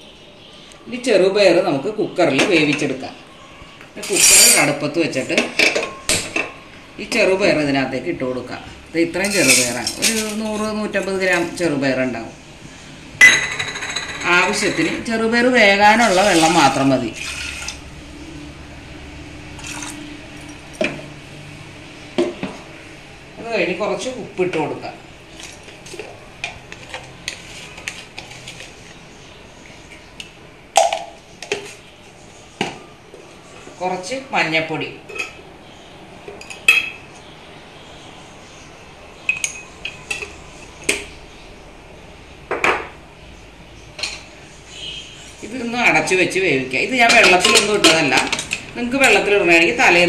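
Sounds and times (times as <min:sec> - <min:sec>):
metal spoon clinking on pot: 0:09.2 - 0:10.4, 0:39.3 - 0:41.0.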